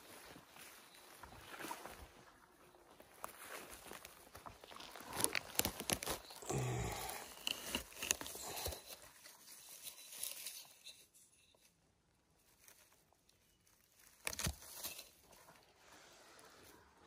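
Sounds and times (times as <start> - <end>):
twigs crackling underfoot: 0.0 - 15.9.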